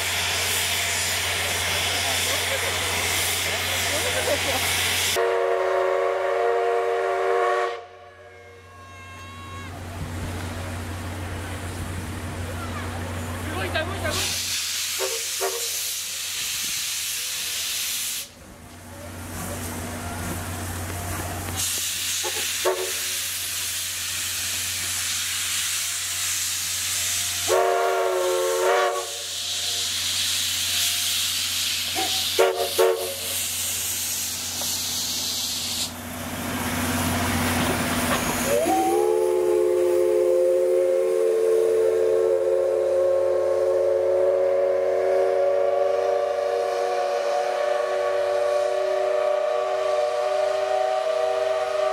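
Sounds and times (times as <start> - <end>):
steam hissing: 0.0 - 7.0, 9.9 - 51.9
steam locomotive whistle: 4.8 - 9.8, 14.2 - 16.0, 21.6 - 23.4, 25.7 - 30.1, 32.0 - 33.5, 38.3 - 51.9.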